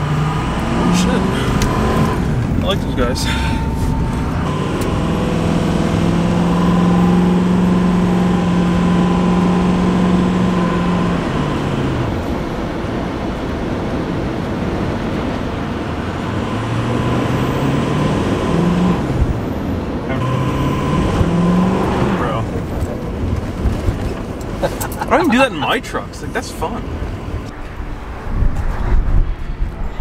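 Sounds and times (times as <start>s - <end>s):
diesel truck engine running: 0.0s - 28.4s.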